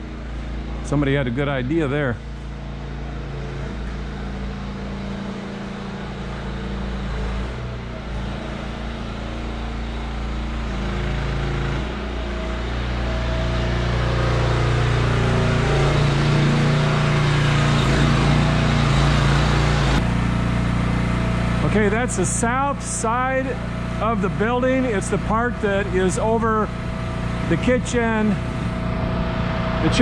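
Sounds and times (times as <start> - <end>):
machinery humming: 0.0 - 30.0.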